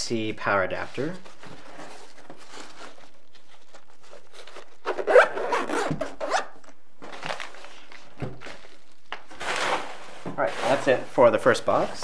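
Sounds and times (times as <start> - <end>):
zipper being zipped: 4.8 - 6.6.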